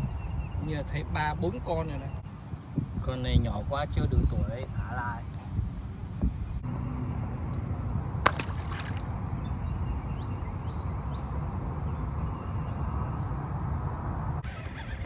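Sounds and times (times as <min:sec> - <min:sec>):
wind rumble on microphone: 0:00.0 - 0:15.0
fish splashing into water: 0:08.3 - 0:09.2.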